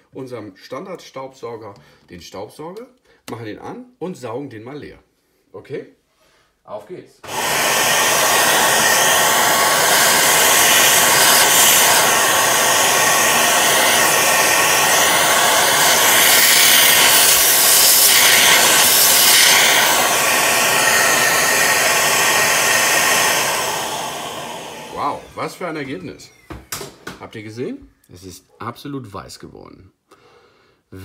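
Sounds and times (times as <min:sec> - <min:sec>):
vacuum cleaner running: 0:07.2 - 0:27.0.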